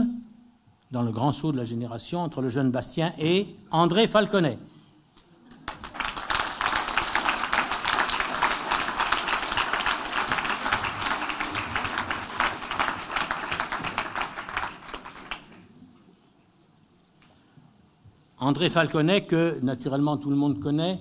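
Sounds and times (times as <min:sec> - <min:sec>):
audience applauding: 0:05.5 - 0:15.7.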